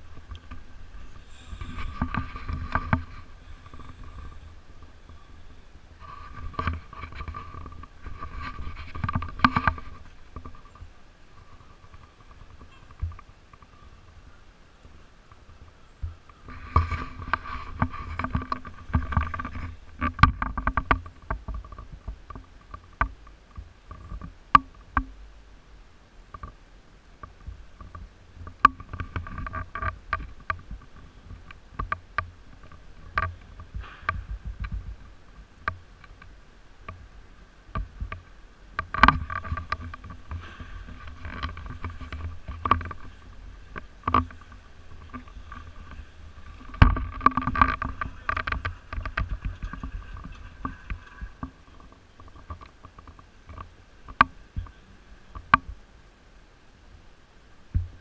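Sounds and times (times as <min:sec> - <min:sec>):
faint machine hum: 0:00.0 - 0:58.0.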